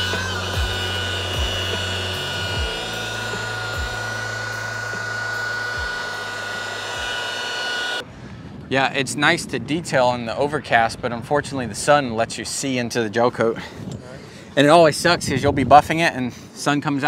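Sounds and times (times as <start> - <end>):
rotary polisher whining: 0.0 - 8.1.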